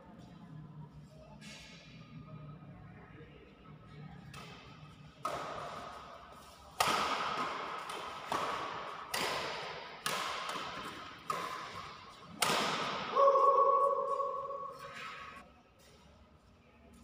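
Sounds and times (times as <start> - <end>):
rackets hitting shuttlecock: 4.2 - 15.2.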